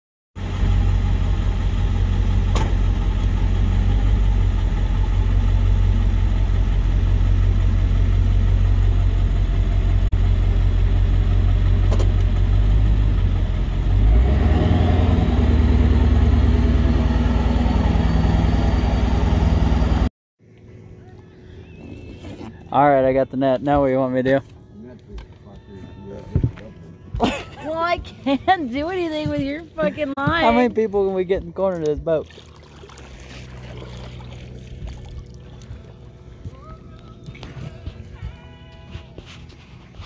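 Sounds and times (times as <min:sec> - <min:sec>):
truck engine idling: 0:00.4 - 0:14.1, 0:32.9 - 0:40.0
faint climbing whine: 0:16.8 - 0:40.0.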